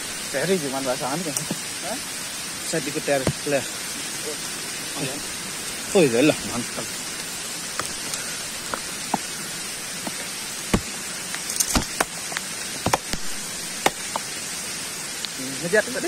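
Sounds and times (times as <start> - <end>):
steady hiss: 0.0 - 16.0
twigs snapping: 7.1 - 14.4.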